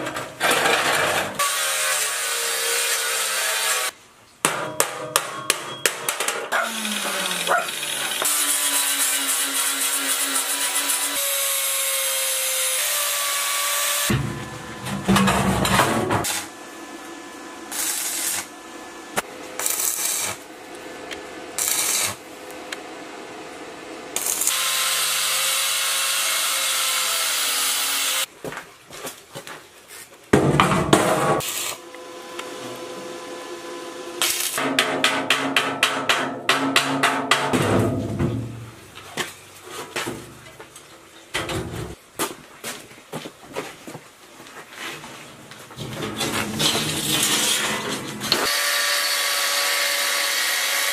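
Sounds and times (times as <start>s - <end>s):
steel panels clanking and scraping: 0.0s - 1.4s, 14.1s - 16.3s, 41.3s - 42.0s, 45.7s - 48.4s
power tool running: 6.7s - 20.5s, 24.1s - 28.3s, 31.4s - 34.6s, 47.1s - 50.9s.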